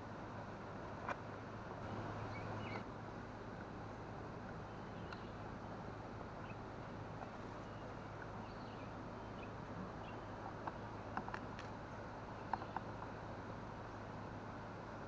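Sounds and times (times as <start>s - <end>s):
low hum: 0.0s - 15.0s
outdoor background hiss: 0.0s - 15.0s
bird chirps: 1.8s - 2.8s, 4.7s - 5.4s, 7.6s - 10.4s.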